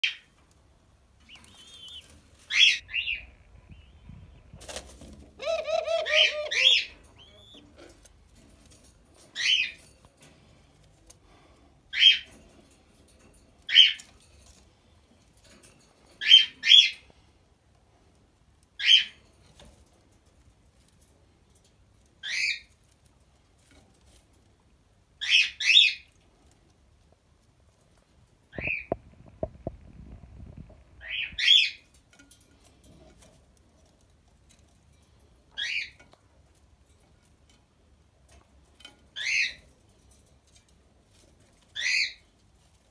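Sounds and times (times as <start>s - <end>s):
wings fluttering: 28.5s - 31.7s
squabs peeping: 28.6s - 31.7s.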